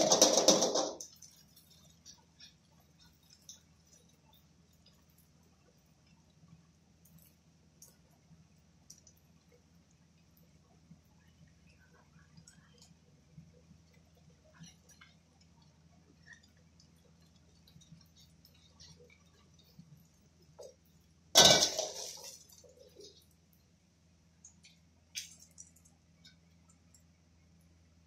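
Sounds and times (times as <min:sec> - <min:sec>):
faint low hum: 0:00.0 - 0:28.0
light steady hiss: 0:00.0 - 0:28.0
metal clang of wok: 0:21.4 - 0:22.3.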